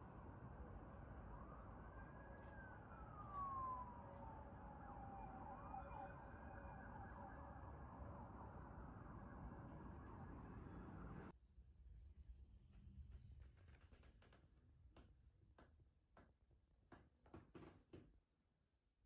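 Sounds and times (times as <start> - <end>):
city traffic rumble: 0.0 - 11.3
faint siren wailing: 0.0 - 11.3.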